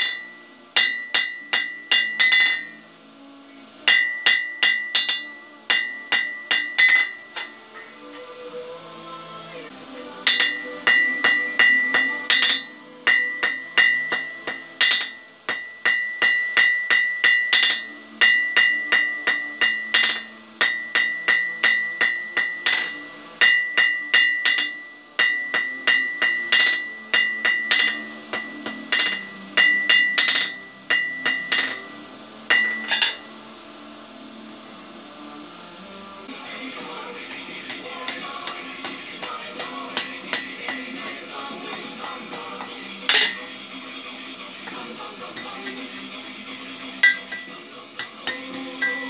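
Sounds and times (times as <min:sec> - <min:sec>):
anvil ringing: 0:00.0 - 0:02.8, 0:03.8 - 0:07.6, 0:10.2 - 0:33.4, 0:36.8 - 0:43.6, 0:47.0 - 0:49.0
hammer striking steel on anvil: 0:00.0 - 0:02.8, 0:03.8 - 0:07.9, 0:10.2 - 0:33.4, 0:36.3 - 0:46.2, 0:46.9 - 0:49.0.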